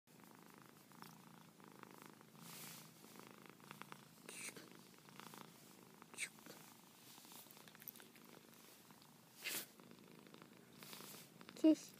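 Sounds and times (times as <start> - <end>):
cat purring: 0.1 - 11.9
cat hissing: 4.2 - 4.7, 9.3 - 9.8.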